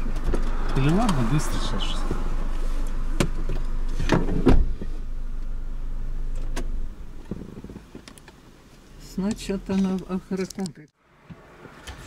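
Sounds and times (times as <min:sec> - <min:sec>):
car engine idling: 0:00.0 - 0:10.4
heavy thump: 0:03.1 - 0:05.0.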